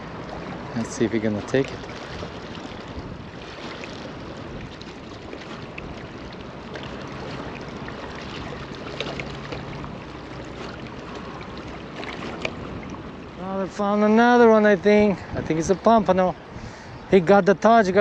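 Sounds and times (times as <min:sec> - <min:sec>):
waves lapping against rocks: 0:00.0 - 0:18.0
wind on microphone: 0:00.0 - 0:18.0.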